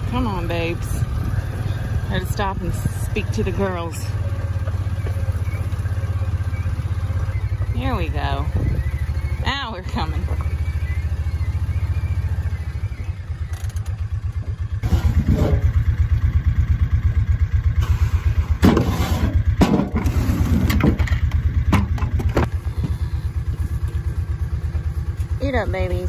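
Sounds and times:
engine idling with low chug: 0.0s - 26.0s
buckets knocking and clattering: 19.6s - 22.6s.

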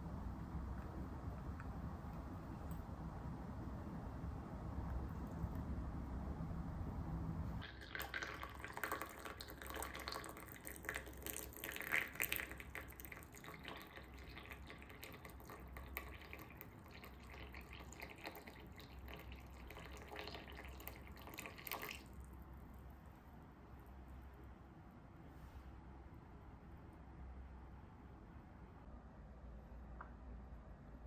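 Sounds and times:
water pouring into a cup: 7.6s - 22.2s.

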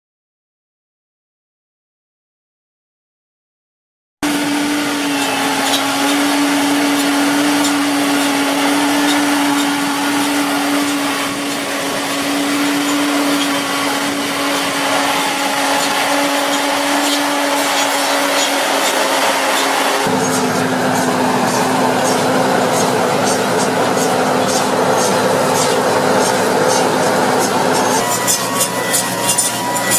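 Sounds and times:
harvester running with high hum: 4.2s - 29.9s.

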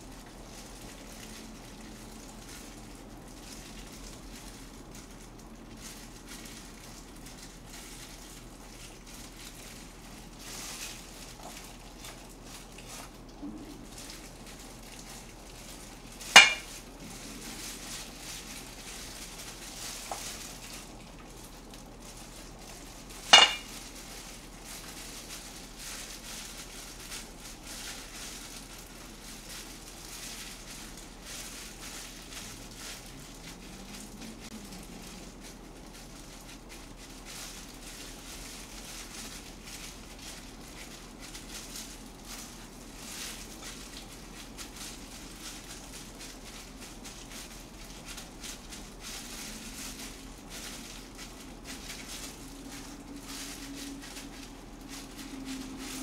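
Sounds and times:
faint food handling noise: 0.0s - 56.0s
utensil clinking against dish: 16.4s - 16.8s, 23.3s - 23.7s.

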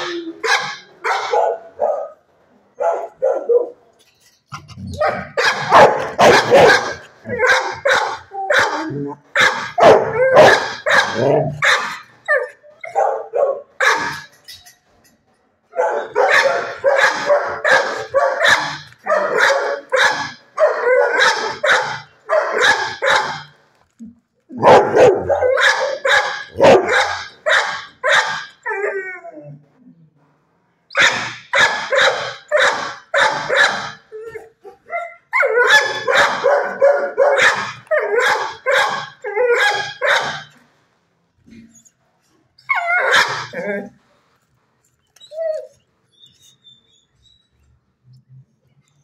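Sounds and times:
dog whining cry: 0.0s - 0.8s, 4.7s - 13.2s, 24.5s - 29.6s, 30.9s - 40.5s, 42.6s - 44.0s, 45.2s - 45.8s
dog barking rapidly: 0.4s - 2.2s, 5.0s - 12.1s, 12.9s - 14.3s, 15.8s - 23.5s, 24.6s - 28.5s, 30.9s - 34.0s, 35.6s - 40.5s, 42.9s - 43.6s.

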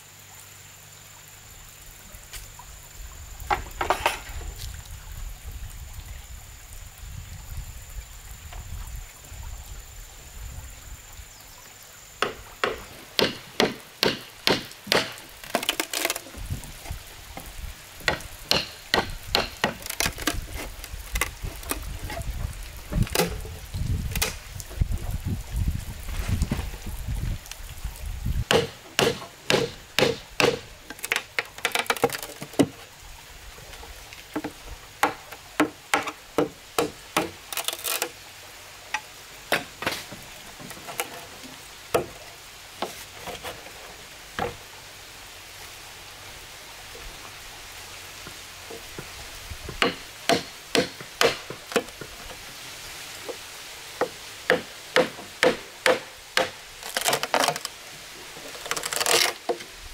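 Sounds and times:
machete chopping bamboo: 12.2s - 16.2s, 18.0s - 21.8s, 28.5s - 32.7s, 35.0s - 38.0s, 49.7s - 52.0s, 54.0s - 57.7s.

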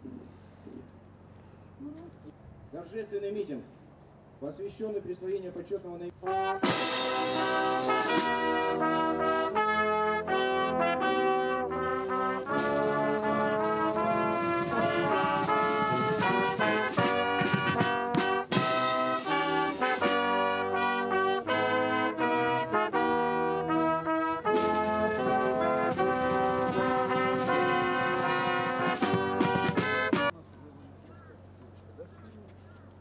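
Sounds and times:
military brass band playing: 6.1s - 30.4s
cymbal crash: 6.7s - 8.6s.

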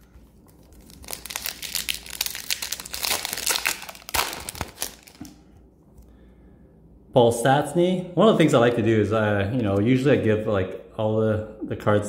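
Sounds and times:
foil wrapper crinkling: 0.0s - 5.4s.

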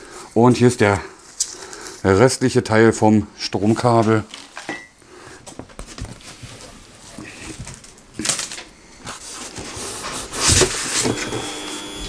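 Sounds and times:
cardboard and styrofoam rustling: 5.7s - 12.0s.

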